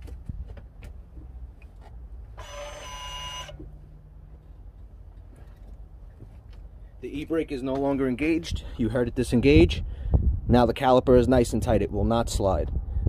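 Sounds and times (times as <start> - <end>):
parking brake motor whirring: 1.6 - 4.4.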